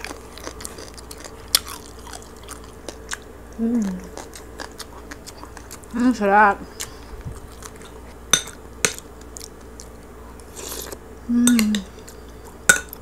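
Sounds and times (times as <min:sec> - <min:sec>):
crunchy chewing: 0:00.0 - 0:11.1, 0:11.9 - 0:13.0
person humming mm: 0:03.6 - 0:04.2, 0:10.7 - 0:12.1.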